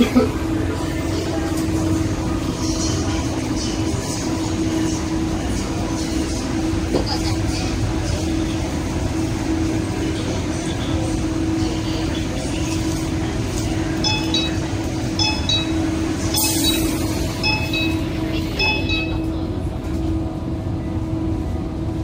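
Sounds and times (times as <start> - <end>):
train equipment hum: 0.0 - 22.0
door-closing warning chimes: 14.0 - 19.3.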